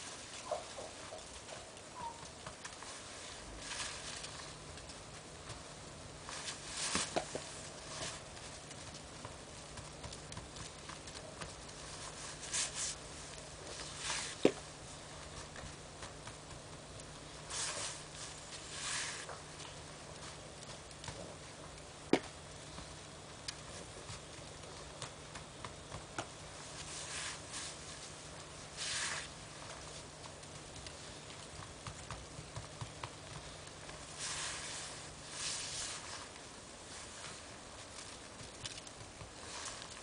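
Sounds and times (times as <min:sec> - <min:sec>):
snow crunching and scraping: 0:00.0 - 0:05.6, 0:06.2 - 0:16.8, 0:17.4 - 0:20.9, 0:26.6 - 0:30.2, 0:33.9 - 0:40.0.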